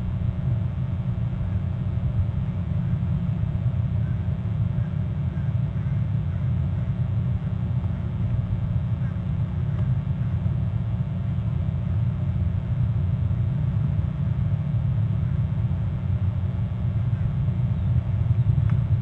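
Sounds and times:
low rumble: 0.0 - 13.8.

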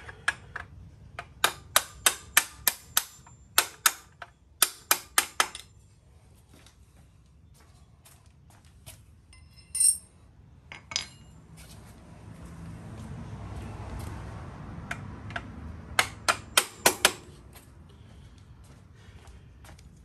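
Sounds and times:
metallic clinks and taps: 9.3 - 11.4.

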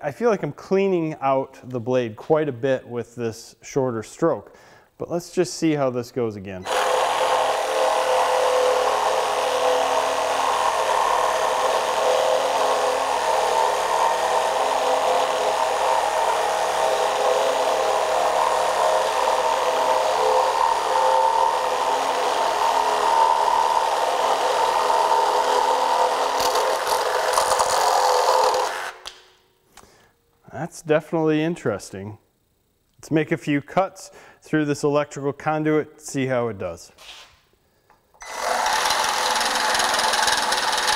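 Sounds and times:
reciprocating saw cutting wood: 6.6 - 29.0, 38.2 - 40.9.

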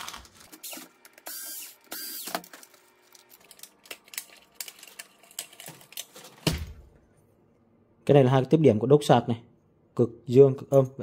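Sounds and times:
electric screwdriver running: 0.0 - 2.4
plastic parts clicking and rattling: 2.2 - 6.5.

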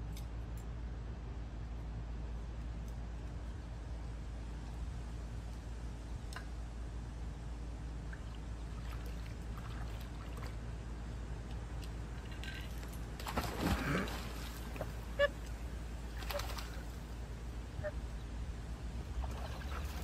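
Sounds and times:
dog splashing into water: 13.2 - 15.0, 16.2 - 17.0.

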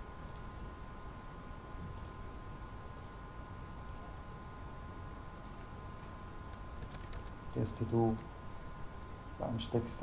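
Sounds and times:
computer mouse clicking: 0.3 - 0.5, 2.0 - 2.2, 3.0 - 3.2, 3.9 - 4.1, 5.4 - 5.7, 6.5 - 7.4.

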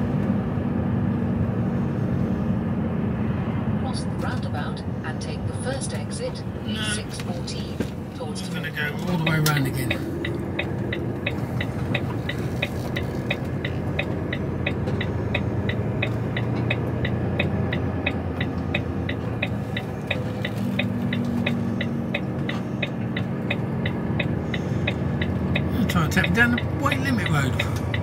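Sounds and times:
diesel engine drone: 0.0 - 28.0
turn-signal relay ticking: 8.5 - 28.0.

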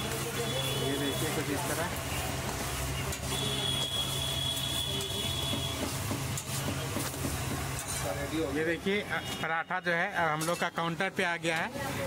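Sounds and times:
spatula scraping on iron griddle: 2.0 - 8.3.

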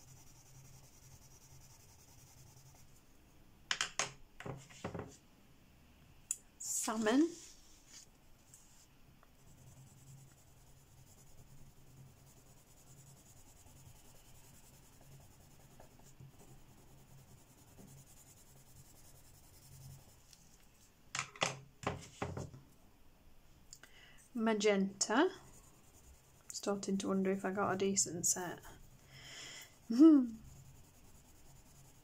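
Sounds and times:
pencil scratching on paper: 0.0 - 3.0, 9.4 - 20.2, 25.3 - 26.8, 29.7 - 32.0.

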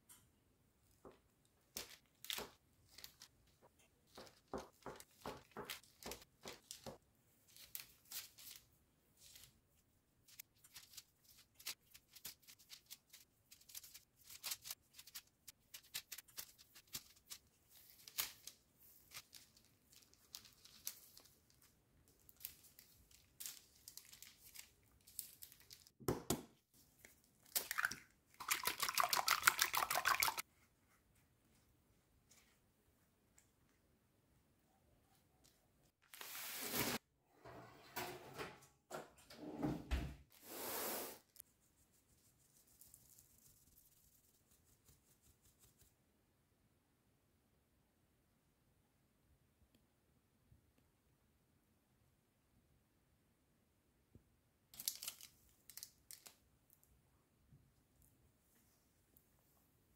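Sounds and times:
paper crinkling and rustling: 1.7 - 9.6, 10.2 - 26.0, 54.8 - 56.4.

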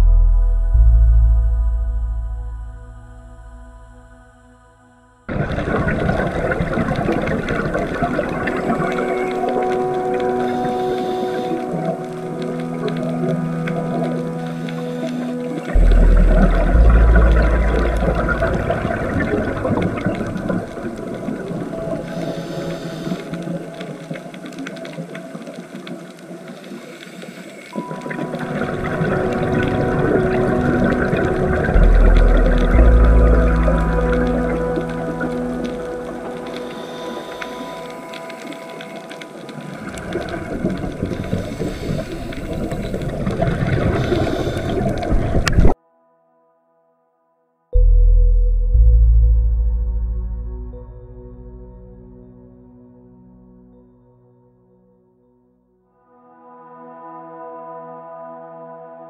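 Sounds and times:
deep underwater rumble: 0.0 - 26.7, 27.8 - 45.8, 47.8 - 53.6
dense underwater crackle: 5.3 - 45.8.

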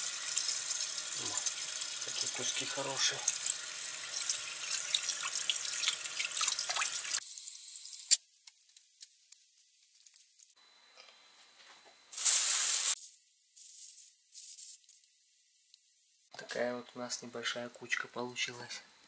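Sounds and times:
plastic bag rustling: 12.1 - 14.8.

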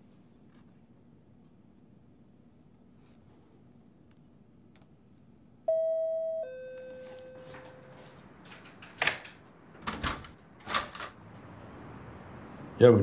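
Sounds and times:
two-note doorbell chime: 5.7 - 8.1.

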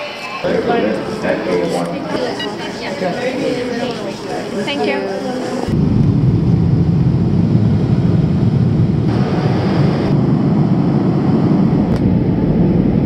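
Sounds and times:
jet engines rumbling in cabin: 5.6 - 13.0.

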